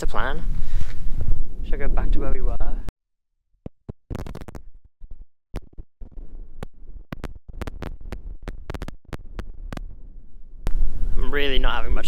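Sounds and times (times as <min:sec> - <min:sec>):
scratchy crackling against microphone: 0:03.7 - 0:10.0.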